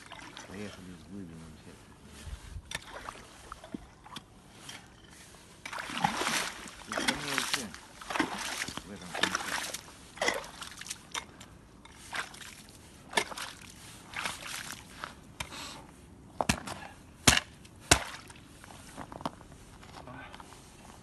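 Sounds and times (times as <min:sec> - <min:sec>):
ice chisel striking ice: 0:16.4 - 0:18.2.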